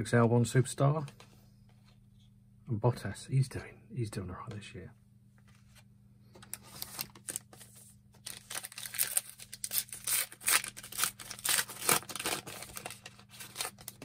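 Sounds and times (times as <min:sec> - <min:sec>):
trading cards rustling: 0:06.4 - 0:14.0.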